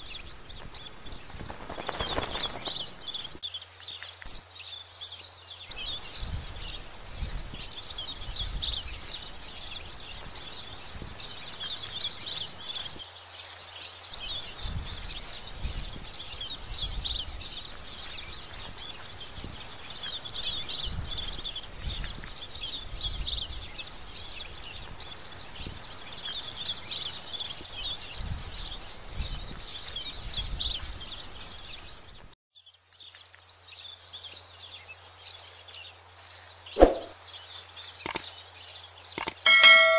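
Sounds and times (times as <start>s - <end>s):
birds chirping: 0.0s - 4.9s, 36.5s - 37.2s, 38.1s - 38.3s, 39.1s - 39.9s.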